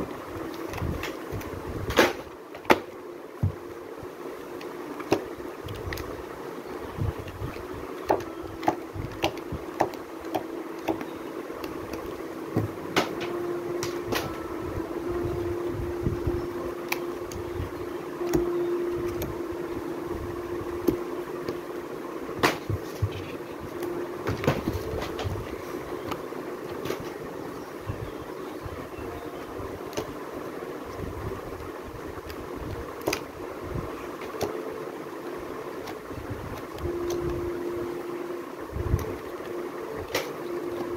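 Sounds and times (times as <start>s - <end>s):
background hum: 0.0s - 40.9s
books tapping and knocking: 8.0s - 14.3s, 22.4s - 23.3s, 24.2s - 25.4s.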